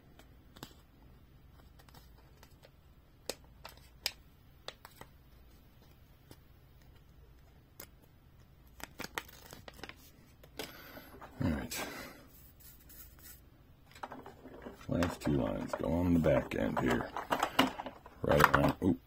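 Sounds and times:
paper sheet clicks and crinkles: 1.5s - 2.7s, 8.7s - 10.6s, 12.9s - 18.8s.

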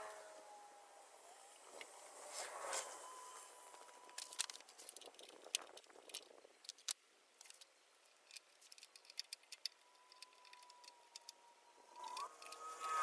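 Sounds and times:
wrench clicking on a bolt: 8.2s - 11.4s, 12.0s - 13.0s.

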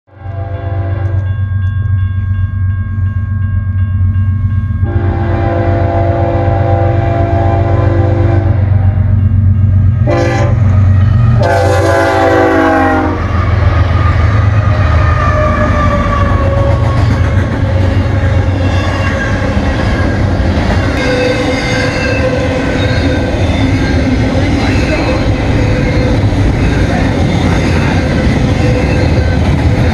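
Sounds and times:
locomotive air horn blasting: 0.1s - 1.2s, 4.8s - 9.1s, 10.0s - 16.8s, 21.0s - 23.2s
crossing bell ringing: 0.4s - 6.4s, 8.6s - 10.4s, 14.7s - 29.9s
train wheels rumbling on rail: 1.0s - 29.9s.

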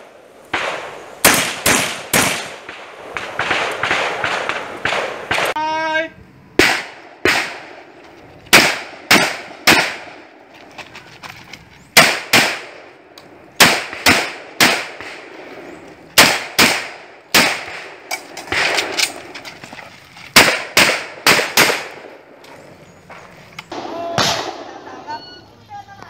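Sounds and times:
shotgun shots: 0.5s - 5.6s, 6.6s - 7.9s, 8.5s - 10.3s, 12.0s - 12.9s, 13.6s - 15.4s, 16.2s - 19.3s, 20.3s - 22.3s, 23.7s - 25.0s.

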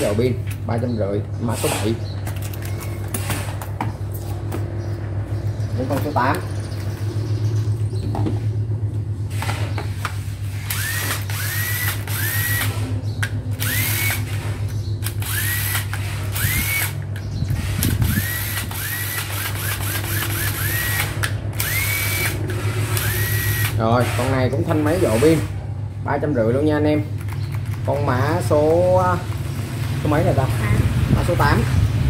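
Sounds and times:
cordless drill motor whining: 10.6s - 24.4s.

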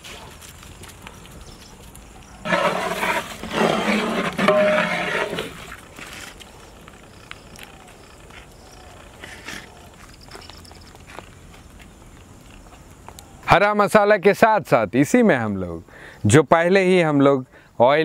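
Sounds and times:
ladle scraping metal pot: 2.5s - 5.8s.

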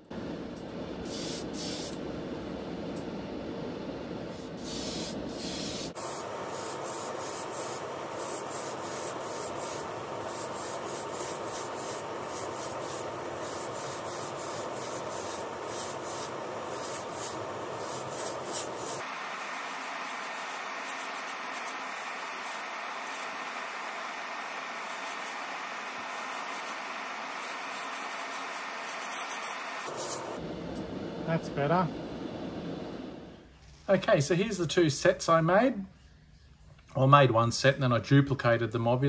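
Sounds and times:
airbrush spraying hiss: 1.0s - 2.1s, 4.2s - 33.4s.

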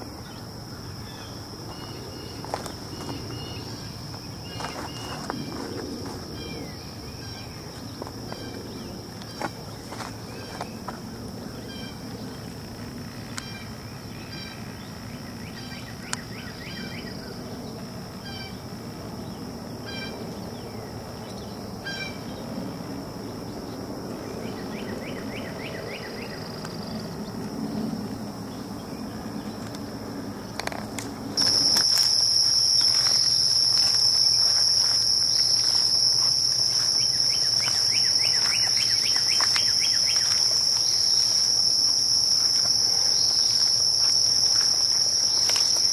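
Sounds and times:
insects trilling: 0.0s - 45.9s
bird calling: 31.4s - 41.6s.

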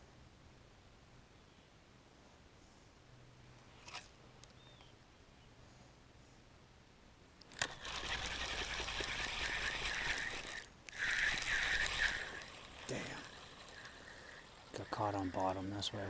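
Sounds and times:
fishing reel whirring rattle: 7.5s - 16.0s.

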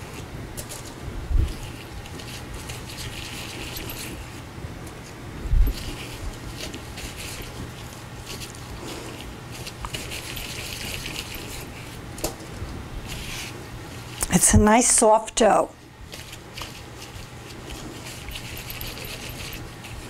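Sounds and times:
steady low hum: 0.0s - 20.0s
plastic gloves rustling: 5.0s - 14.4s, 15.8s - 20.0s.

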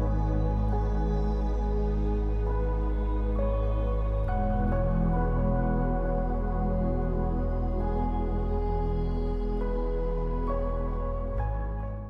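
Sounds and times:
deep bass drone: 0.0s - 12.0s
slow ambient chords: 0.0s - 12.0s.

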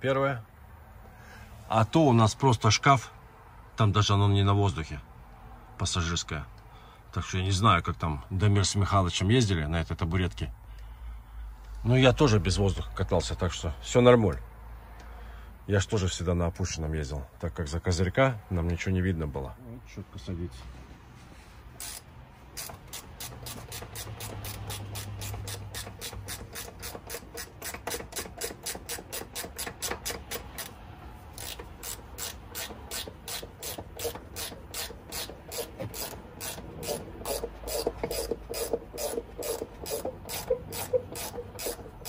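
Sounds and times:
ratchet wrench clicking: 21.8s - 42.0s.

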